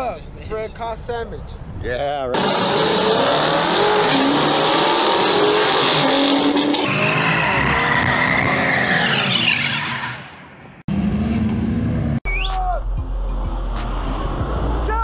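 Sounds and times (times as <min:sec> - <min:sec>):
car engines revving: 0:02.3 - 0:12.2, 0:13.0 - 0:15.0
tires squealing: 0:02.4 - 0:10.7.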